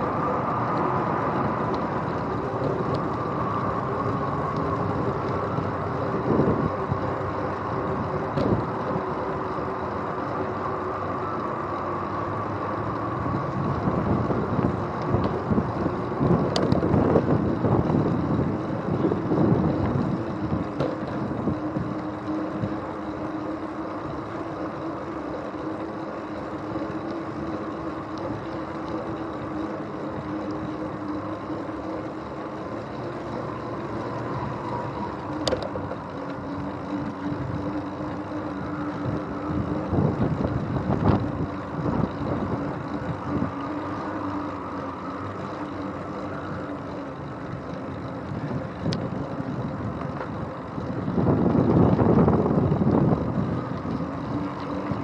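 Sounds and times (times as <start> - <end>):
bicycle rolling rumble: 0.0 - 55.0
steady hum: 0.0 - 55.0
wind on microphone: 13.1 - 22.8, 33.8 - 45.4, 48.2 - 55.0.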